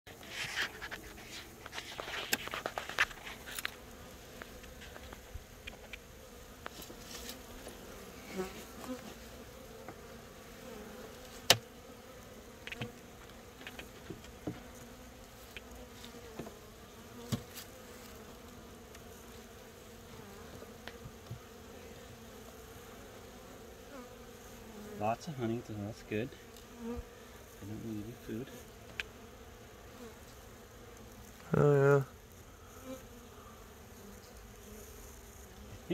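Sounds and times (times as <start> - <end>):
honeybees buzzing: 0.1 - 35.9.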